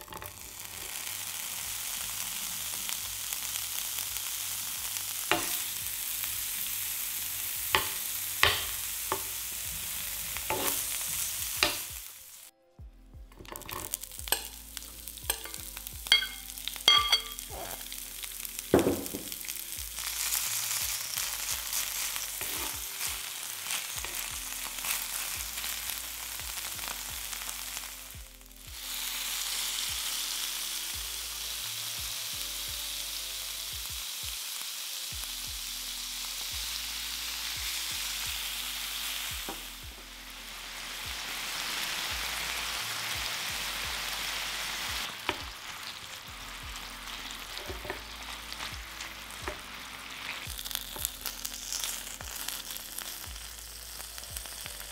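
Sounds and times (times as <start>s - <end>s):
vegetables sizzling in oil: 0.0s - 12.5s, 13.4s - 54.9s
metal spoon clinking against pan: 13.4s - 14.6s, 15.2s - 17.5s.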